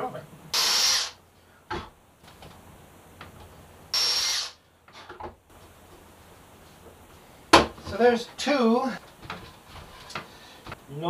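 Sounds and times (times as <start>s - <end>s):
cordless drill burst: 0.5s - 1.2s, 3.9s - 4.6s
knocks on wood: 7.5s - 8.0s.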